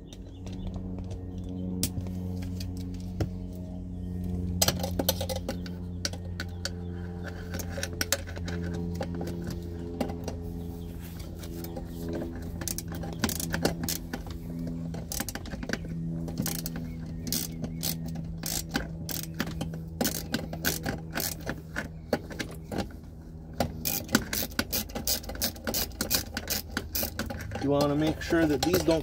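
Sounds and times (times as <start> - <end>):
steady low hum: 0.0 - 29.0
socket ratchet clicking: 16.4 - 21.5, 23.8 - 27.6.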